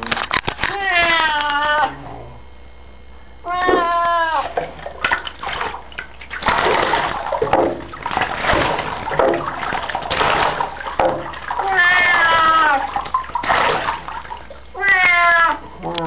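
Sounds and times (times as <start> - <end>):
cat meowing: 0.7 - 2.0, 3.4 - 4.6, 11.6 - 12.9, 14.7 - 16.0
bathwater splashing: 3.7 - 15.5.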